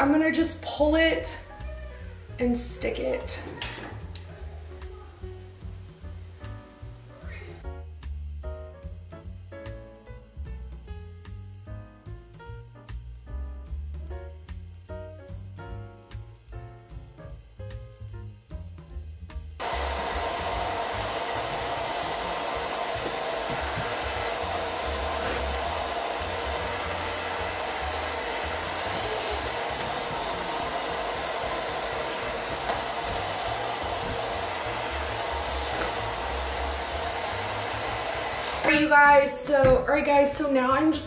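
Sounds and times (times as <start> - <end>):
hair dryer running: 19.6 - 39.9.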